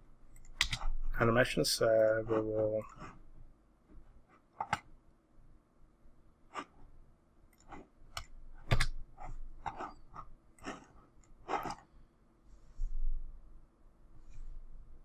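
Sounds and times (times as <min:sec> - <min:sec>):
computer mouse clicks: 0:00.3 - 0:00.9, 0:04.6 - 0:04.9, 0:07.5 - 0:09.0.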